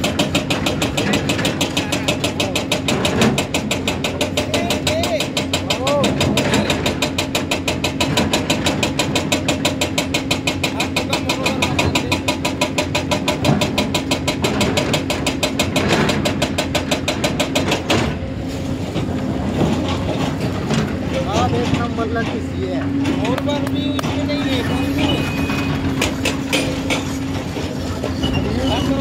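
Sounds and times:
fast knocking clatter: 0.0s - 18.0s
heavy diesel engines running: 0.0s - 29.0s.

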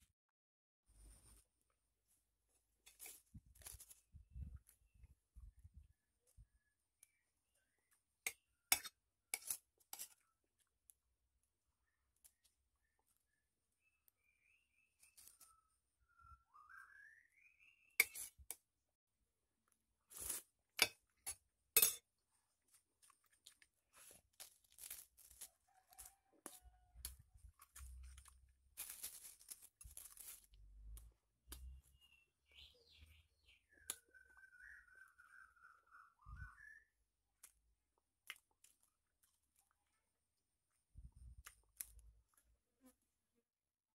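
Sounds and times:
metal spoon clinking on glass plate: 21.8s - 22.0s.

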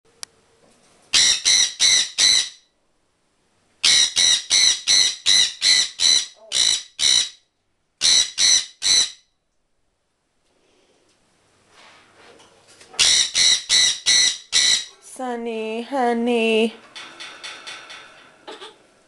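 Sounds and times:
parrot screeching: 1.1s - 2.6s, 3.8s - 7.4s, 8.0s - 9.2s, 13.0s - 15.0s.

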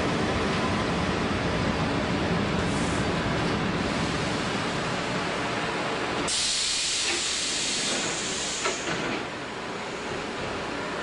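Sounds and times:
compressed air hissing: 6.3s - 8.9s.

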